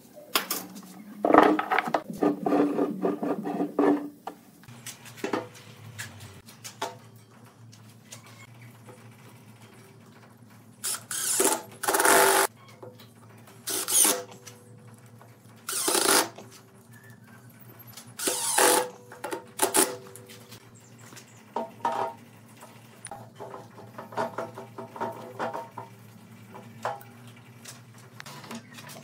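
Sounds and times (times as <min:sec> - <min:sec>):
impact driver driving screws: 0:15.7 - 0:16.4, 0:18.2 - 0:18.9.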